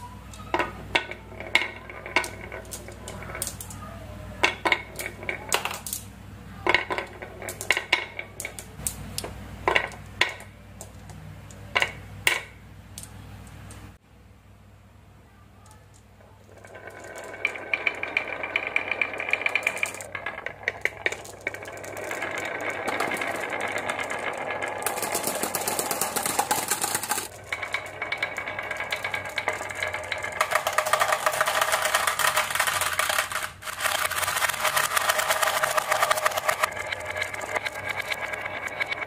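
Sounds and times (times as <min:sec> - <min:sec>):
marbles rattling down wooden groove: 0:00.0 - 0:03.8, 0:04.4 - 0:06.0, 0:06.6 - 0:09.0, 0:16.4 - 0:39.0.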